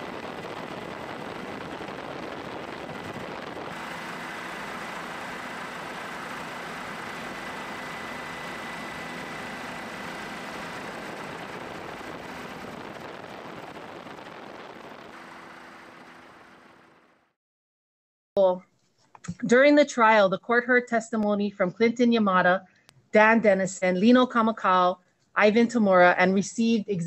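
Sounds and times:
helicopter engine and rotor: 0.0s - 17.2s
thin steady whine: 0.0s - 17.3s.

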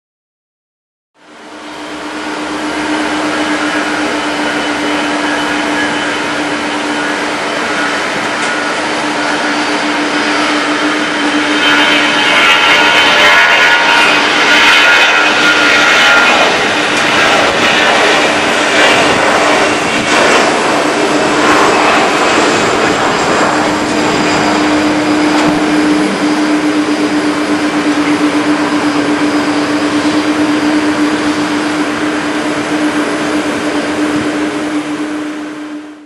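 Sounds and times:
jet engine roar: 1.2s - 36.0s.

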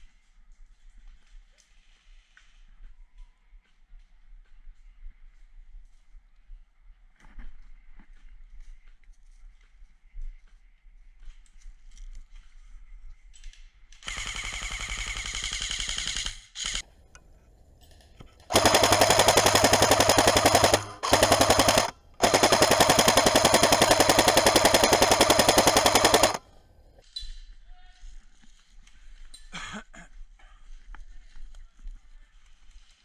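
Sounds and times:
airsoft rifle firing bursts: 14.0s - 16.8s, 18.5s - 26.6s.

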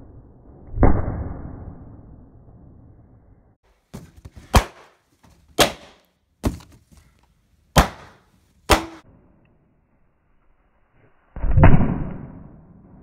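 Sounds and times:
balloons bursting: 3.7s - 7.0s, 7.7s - 9.0s.

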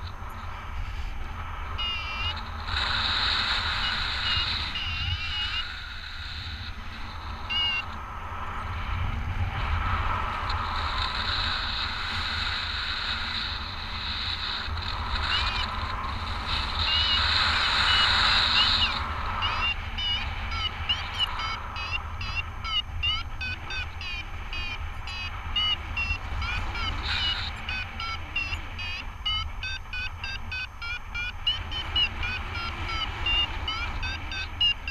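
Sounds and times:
variometer beeping rapidly: 1.8s - 5.8s, 7.4s - 7.9s, 14.6s - 34.9s.

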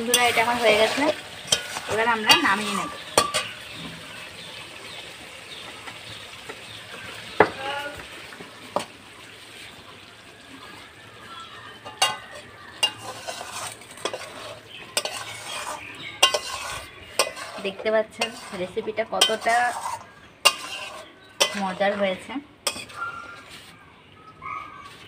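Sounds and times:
wooden spatula scraping pan: 0.0s - 3.8s, 12.0s - 23.9s
curry sizzling in pan: 0.0s - 23.7s.

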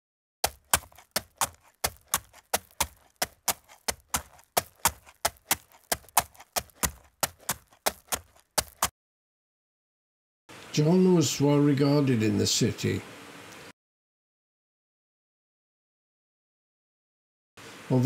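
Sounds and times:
horse hooves on hard surface: 0.4s - 8.9s.

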